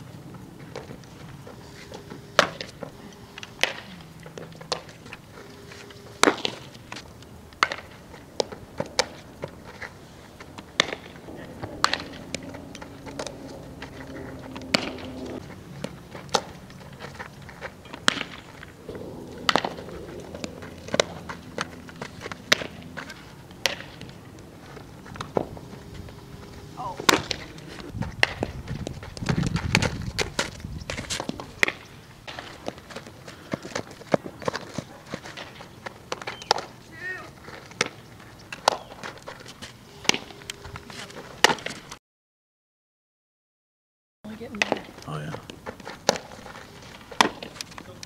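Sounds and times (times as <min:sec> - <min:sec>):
bat hitting softball: 0:01.9 - 0:05.0, 0:05.6 - 0:09.6, 0:10.5 - 0:28.6, 0:37.8 - 0:39.1, 0:39.9 - 0:40.6, 0:44.6 - 0:45.0, 0:47.1 - 0:47.8.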